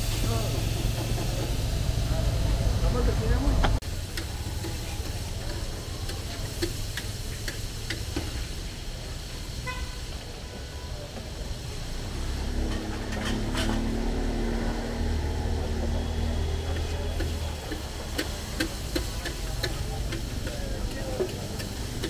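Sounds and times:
street traffic rumbling: 0.0s - 22.0s
vehicle horn toot: 9.5s - 10.1s.

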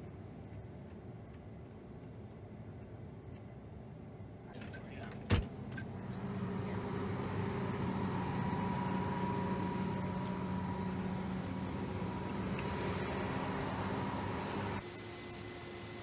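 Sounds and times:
combine harvester engine droning: 5.5s - 14.8s.

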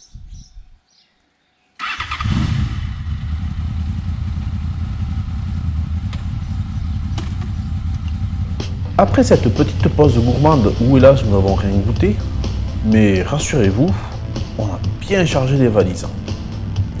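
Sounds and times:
motorcycle engine running: 2.2s - 15.3s.

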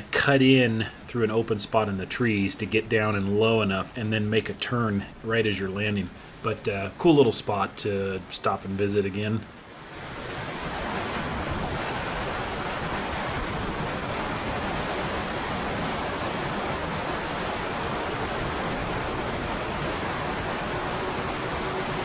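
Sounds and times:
rushing wind: 9.5s - 22.0s.

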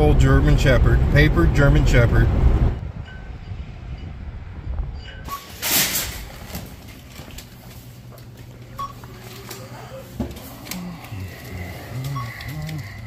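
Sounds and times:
loud rush of noise: 0.0s - 4.5s
steady low hum: 0.0s - 5.3s, 6.0s - 13.0s.

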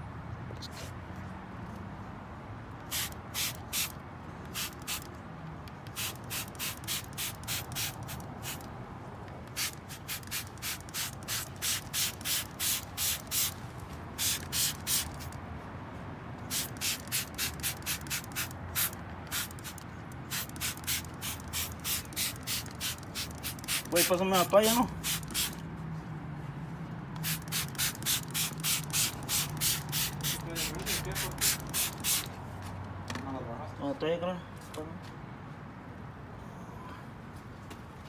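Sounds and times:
spray bottle hissing sprays: 2.8s - 5.1s, 5.9s - 8.7s, 9.5s - 13.6s, 14.2s - 15.4s, 16.5s - 25.6s, 27.2s - 32.3s.

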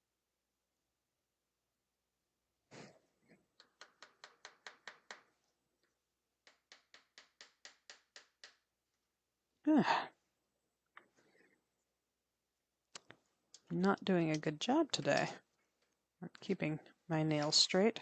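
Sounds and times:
hammer tapping tacks into wood: 3.6s - 5.4s, 6.4s - 8.7s
person sighing: 9.7s - 10.2s.

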